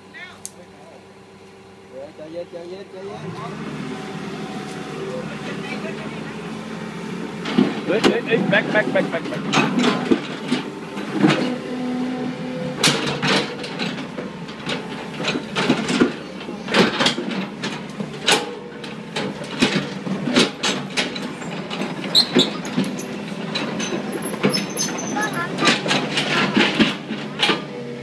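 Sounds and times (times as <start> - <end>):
excavator diesel engine: 0.0 - 28.0
metal clanks and knocks: 7.4 - 11.8, 12.6 - 27.8.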